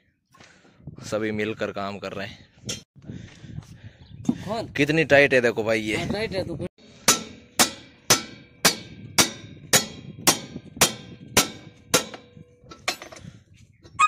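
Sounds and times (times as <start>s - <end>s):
hammer striking metal spanner: 7.0s - 13.3s.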